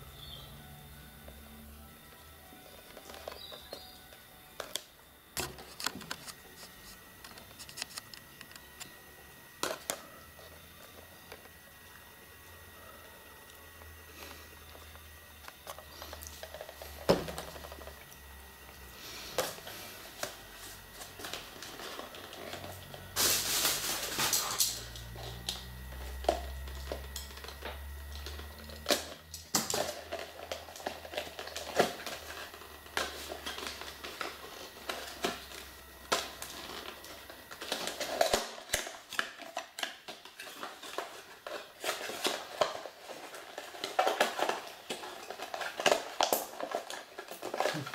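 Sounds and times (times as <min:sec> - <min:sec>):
packaging rustling and clicking: 0:02.0 - 0:11.7, 0:19.3 - 0:47.9.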